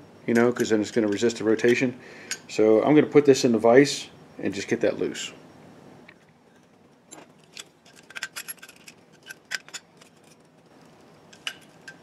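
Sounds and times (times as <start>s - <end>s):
light metallic clicks and clinks: 11.3s - 12.0s.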